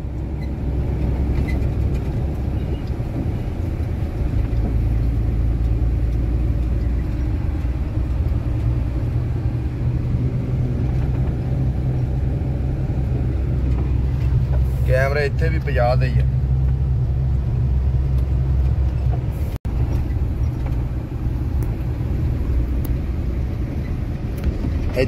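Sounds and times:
truck engine and road noise: 0:00.0 - 0:25.0.

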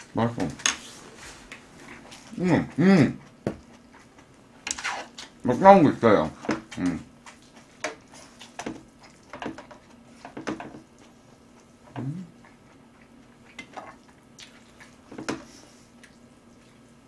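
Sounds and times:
mouth chewing noodles: 0:01.8 - 0:05.4, 0:10.9 - 0:17.0.

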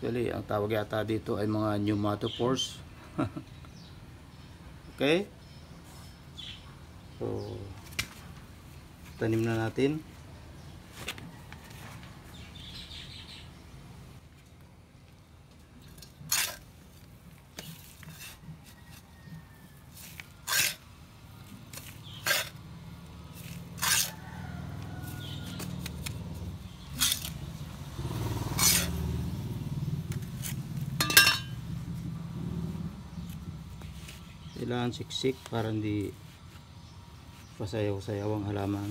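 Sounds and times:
soil scraping: 0:15.8 - 0:31.6.

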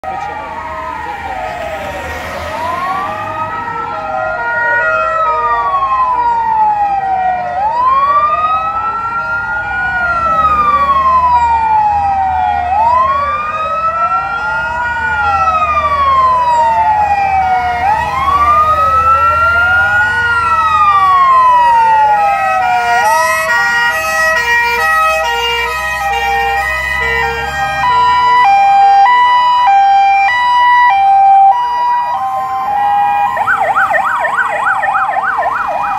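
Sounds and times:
low rumble of engines: 0:00.0 - 0:35.9
stepped siren tones: 0:00.0 - 0:35.9
wailing sirens: 0:00.0 - 0:35.9.

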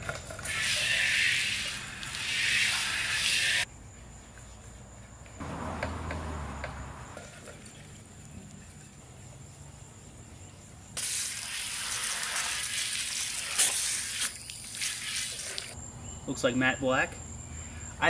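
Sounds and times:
hose nozzle spraying water: 0:00.4 - 0:03.6, 0:11.0 - 0:15.8
sandpaper rubbing: 0:00.4 - 0:03.6.

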